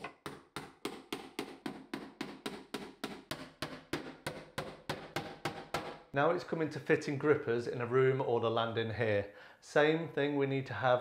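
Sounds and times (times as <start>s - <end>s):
hammer striking nails into wood: 0.0s - 6.1s.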